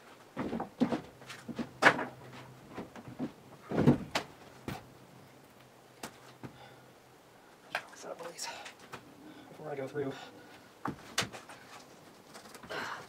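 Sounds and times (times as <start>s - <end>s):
footsteps on wooden floorboards: 0.3s - 4.8s
floorboards creaking: 0.4s - 4.8s.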